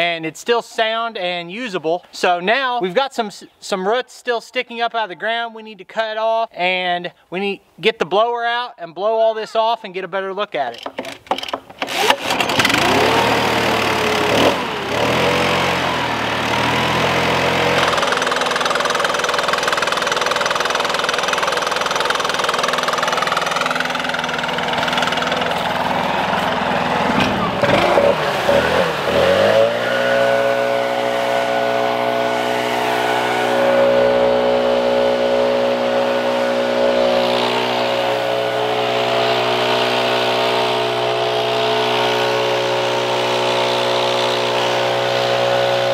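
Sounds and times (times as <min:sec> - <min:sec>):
leaf blower engine running: 0:11.8 - 0:45.9.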